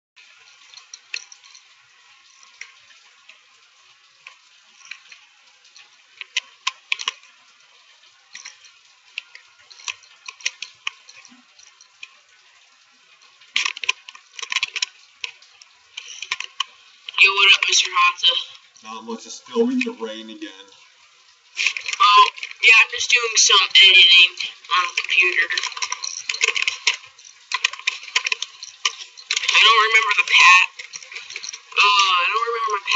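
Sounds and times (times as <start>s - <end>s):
sharp ticks of drips: 0.2s - 17.7s
rain falling: 0.2s - 32.9s.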